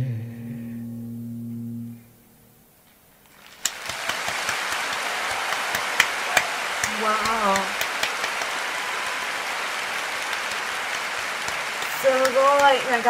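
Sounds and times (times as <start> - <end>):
applause with sharp hand claps: 3.2 - 13.0.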